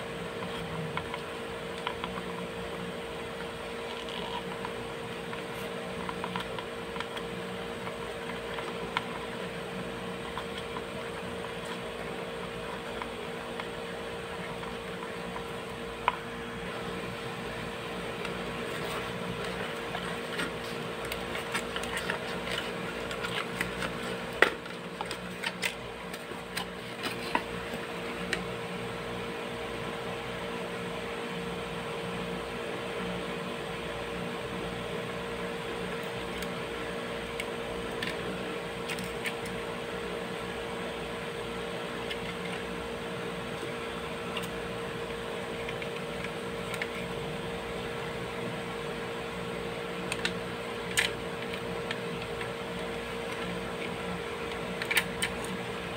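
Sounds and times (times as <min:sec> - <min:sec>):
fan humming: 0:00.0 - 0:55.9
small clicks and scrapes of wire: 0:37.3 - 0:39.6.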